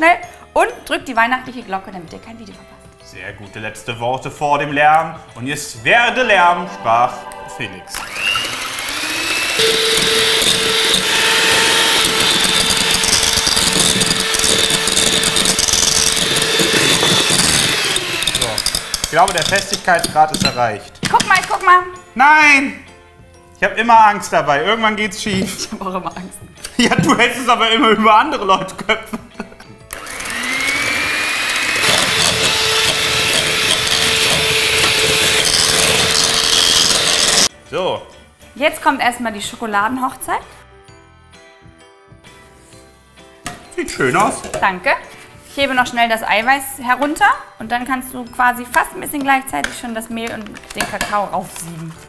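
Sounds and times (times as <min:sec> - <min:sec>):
electric hand mixer whining: 0:07.3 - 0:20.1, 0:29.8 - 0:37.5
beaters whipping in plastic bowl: 0:09.7 - 0:20.3.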